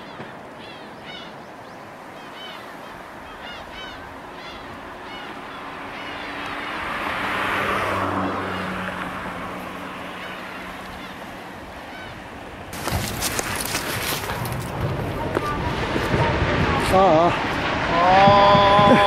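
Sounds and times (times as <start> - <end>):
bird calling: 0.0 - 6.7, 9.6 - 14.4
water rushing: 0.0 - 19.0.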